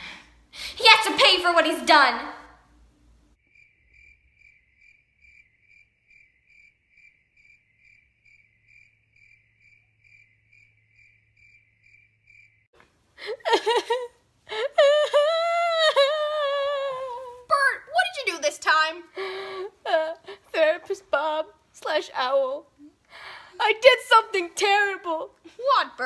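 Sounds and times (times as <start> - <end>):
cricket chirping: 3.4 - 12.7.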